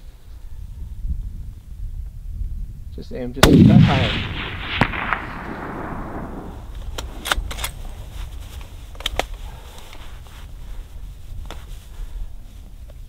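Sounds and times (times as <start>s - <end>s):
rifle shot echo: 3.4s - 8.1s
rifle action metallic clicks: 4.6s - 7.8s, 9.0s - 9.4s.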